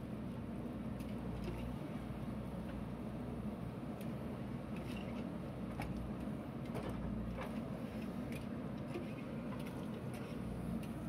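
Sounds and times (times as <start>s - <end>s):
backhoe diesel engine: 0.0s - 11.0s
light knocks and clatters: 4.8s - 11.0s.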